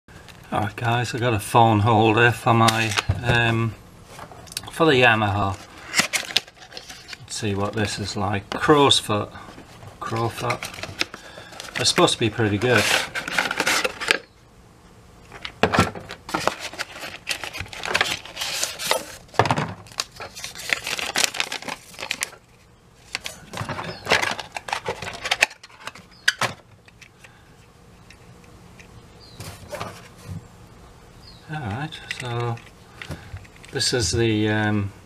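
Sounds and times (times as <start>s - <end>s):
cardboard box and paper rustling: 5.4s - 8.0s, 9.6s - 14.2s, 15.7s - 26.6s, 29.4s - 30.4s
plastic parts clicking and knocking: 23.2s - 27.1s.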